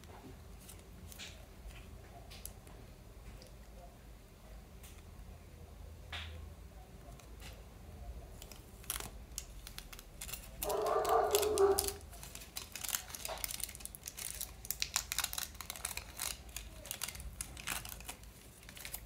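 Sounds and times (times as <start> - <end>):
paper and tape crinkling: 8.3 - 19.0.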